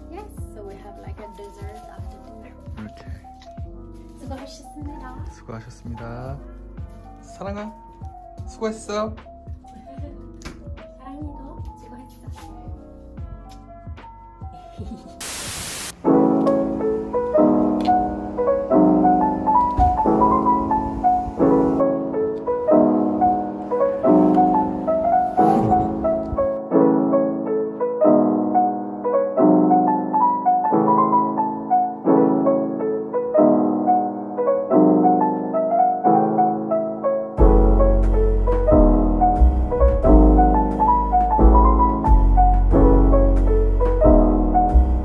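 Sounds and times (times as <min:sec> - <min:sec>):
gentle piano chords: 0:00.0 - 0:15.3, 0:15.9 - 0:45.0
burst of hiss: 0:15.2 - 0:16.0.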